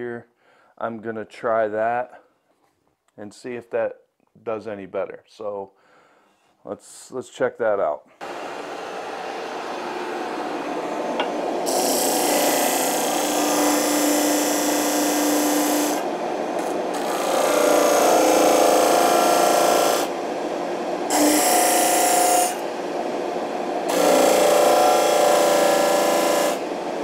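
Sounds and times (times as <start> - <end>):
disc sander grinding wood: 8.2 - 20.2, 21.1 - 22.8, 23.8 - 26.9
shop vacuum running: 8.2 - 27.0.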